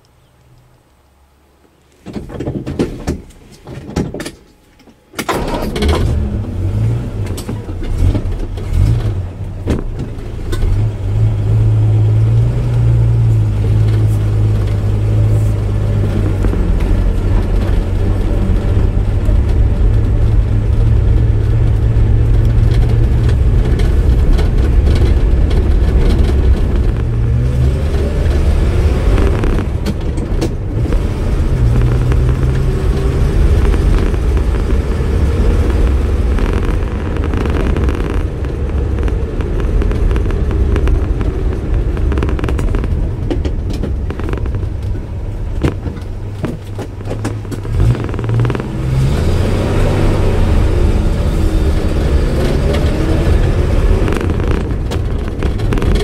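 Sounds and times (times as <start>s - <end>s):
car engine starting and revving: 5.2s - 56.0s
clicks and knocks: 16.0s - 49.0s, 52.3s - 56.0s.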